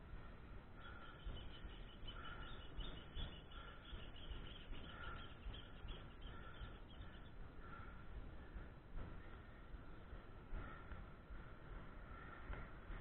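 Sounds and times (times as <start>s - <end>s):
faint high chirps: 0.8s - 7.4s.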